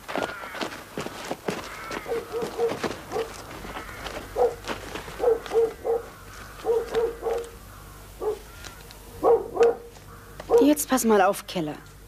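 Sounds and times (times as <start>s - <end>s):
dog barking: 2.1s - 3.4s, 4.4s - 7.6s, 8.2s - 8.5s, 9.2s - 10.7s.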